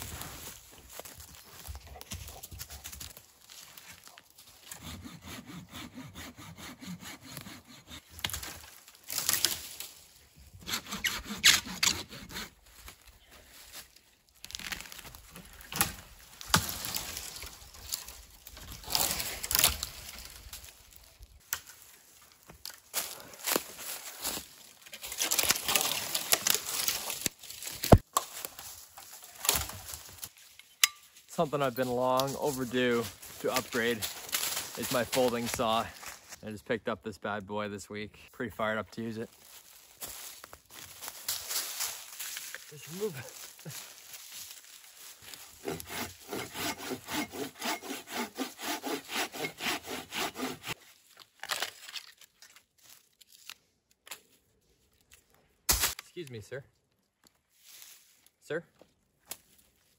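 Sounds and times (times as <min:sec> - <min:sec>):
branches dragged over dry leaves: 0:00.0 - 0:04.6, 0:12.6 - 0:36.4, 0:39.3 - 0:45.6, 0:57.5 - 0:58.4
twigs crackling: 0:00.0 - 0:04.7, 0:08.0 - 0:10.4, 0:12.6 - 0:36.4, 0:39.2 - 0:46.3, 0:50.7 - 0:59.9
hand saw cutting log: 0:04.6 - 0:08.7, 0:10.6 - 0:12.6, 0:45.3 - 0:50.8
footsteps on leaf litter: 0:31.4 - 0:36.4, 0:39.2 - 0:45.6, 0:57.4 - 0:58.4.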